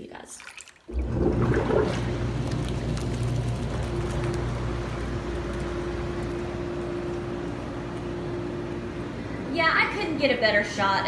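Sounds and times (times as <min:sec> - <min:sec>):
water rushing and churning: 0:00.4 - 0:05.8
pump motor hum: 0:00.9 - 0:09.8.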